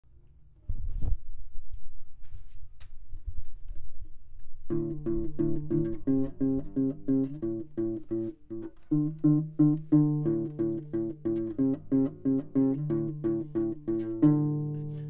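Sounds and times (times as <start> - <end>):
bass notes: 4.7 - 15.0
plucked guitar-like notes: 4.7 - 15.0.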